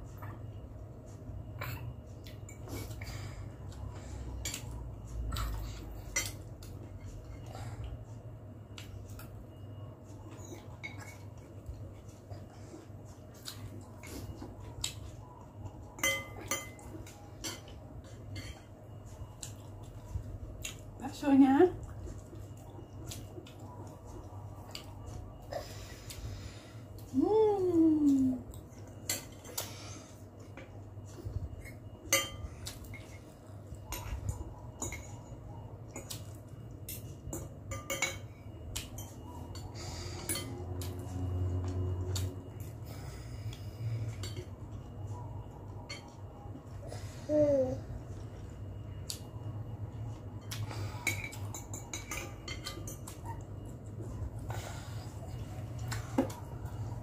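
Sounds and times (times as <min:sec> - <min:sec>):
steady low hum: 0:00.0 - 0:57.0
cutlery clinking on glass bowl: 0:16.0 - 0:18.7, 0:32.1 - 0:33.3, 0:33.9 - 0:35.3, 0:36.9 - 0:41.0, 0:50.4 - 0:53.4.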